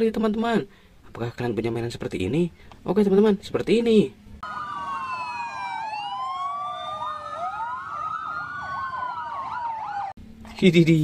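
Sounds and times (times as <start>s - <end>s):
fast siren yelp: 4.4s - 10.2s
fire engine sirens wailing: 4.4s - 10.2s.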